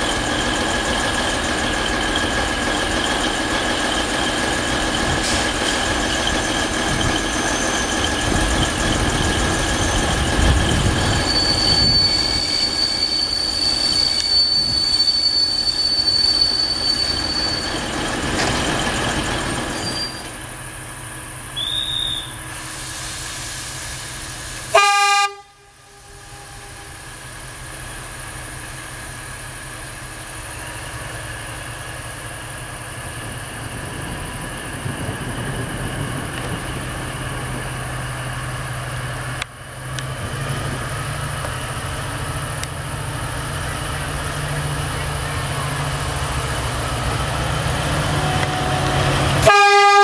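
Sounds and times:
locomotive wheel squeal: 0.0s - 20.6s, 21.5s - 23.2s
train rumble: 0.0s - 50.0s
train horn blast: 24.7s - 27.0s, 48.1s - 50.0s.

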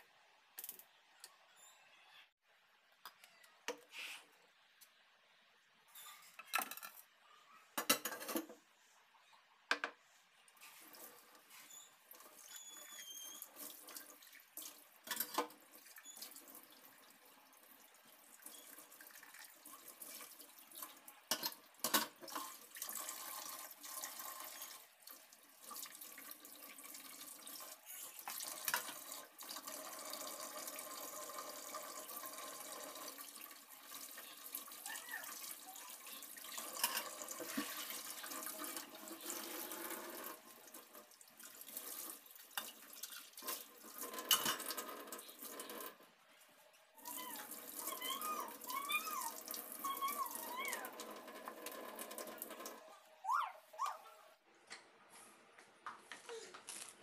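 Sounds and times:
dishes knocking and clinking: 7.8s - 8.6s, 9.7s - 10.0s, 21.3s - 22.2s.

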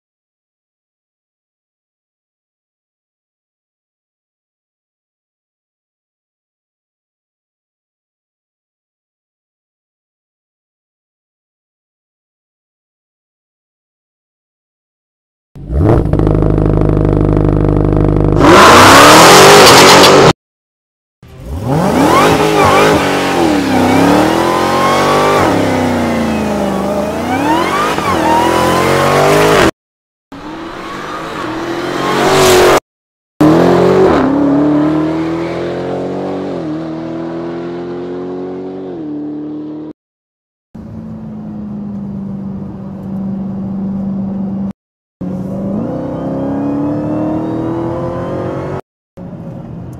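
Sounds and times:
car engine revving: 15.6s - 20.4s, 21.2s - 29.7s, 33.4s - 39.9s, 45.2s - 48.8s.

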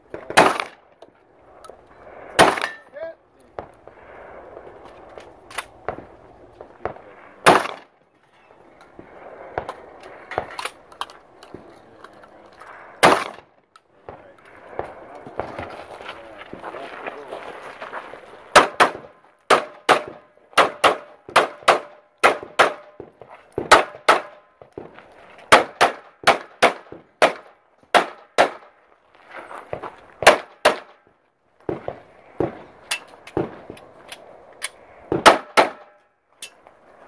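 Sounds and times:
rapid pistol shots: 0.3s - 0.8s, 2.4s - 2.8s, 6.8s - 7.9s, 13.0s - 13.5s, 18.5s - 23.0s, 23.7s - 24.4s, 25.5s - 28.7s, 30.2s - 31.0s, 35.1s - 35.9s.

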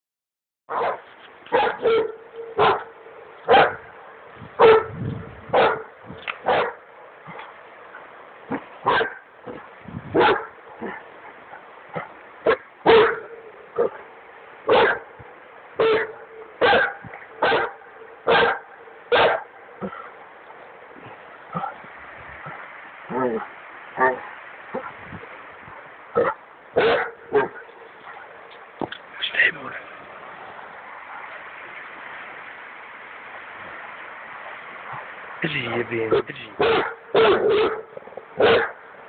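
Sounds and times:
dog barking: 0.7s - 3.9s, 4.6s - 4.9s, 5.5s - 7.5s, 8.8s - 14.0s, 14.7s - 15.1s, 15.8s - 20.0s, 26.2s - 28.4s, 36.1s - 38.8s
river rushing: 1.1s - 39.0s.

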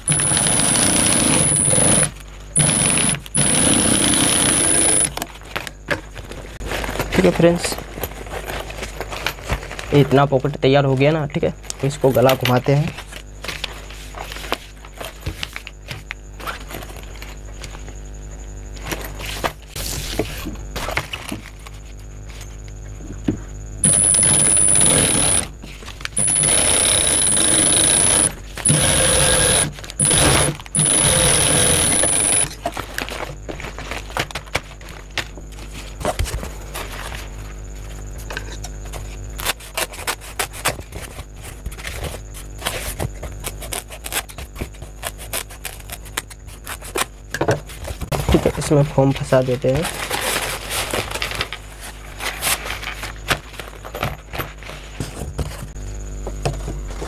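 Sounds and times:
sewing machine whine: 0.0s - 5.2s, 23.8s - 32.6s.

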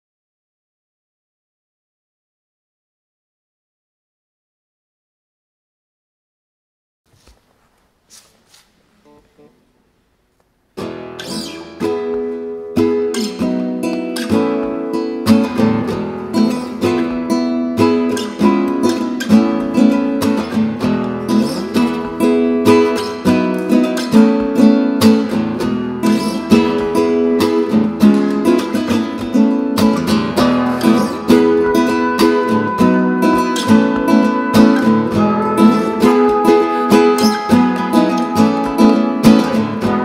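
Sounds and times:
acoustic guitar strumming: 10.8s - 40.0s
trumpet holding notes: 30.4s - 40.0s.

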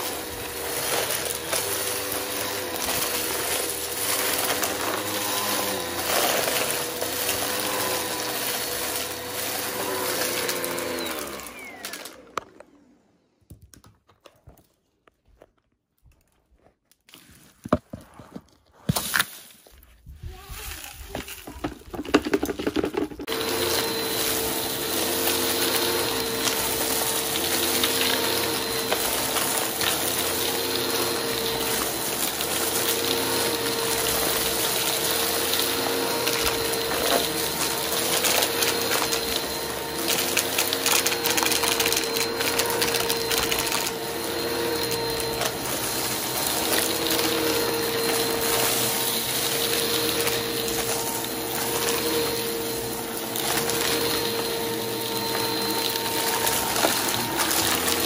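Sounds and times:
vacuum cleaner motor whine: 0.0s - 13.4s, 21.9s - 58.0s.

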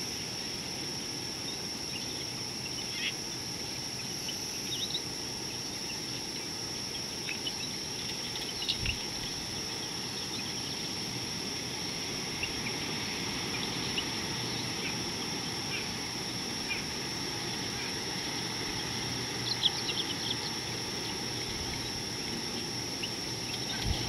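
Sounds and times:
high-pitched insect drone: 0.0s - 24.0s
bird chirps: 4.0s - 11.0s, 17.7s - 24.0s.

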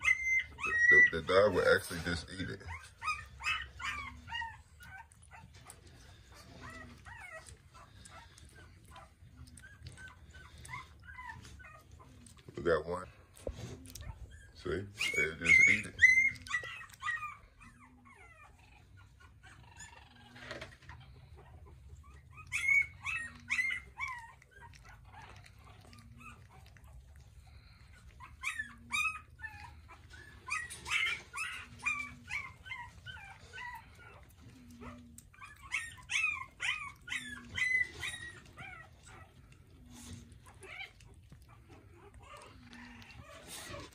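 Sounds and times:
puppies whimpering and squealing: 0.0s - 43.9s.

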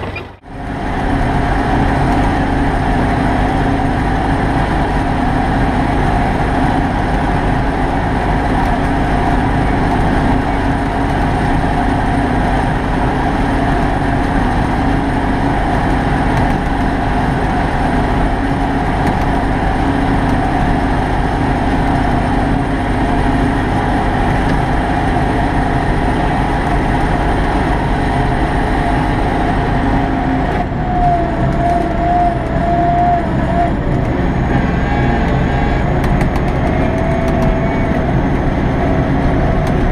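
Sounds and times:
tractor diesel engine running: 0.0s - 39.9s
wavering whine: 16.7s - 39.9s.

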